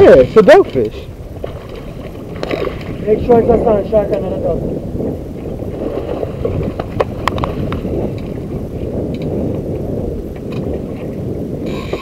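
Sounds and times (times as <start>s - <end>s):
water around boat: 0.0s - 12.0s
wind rumble on microphone: 0.0s - 12.0s
fish splashing at surface: 1.4s - 3.0s.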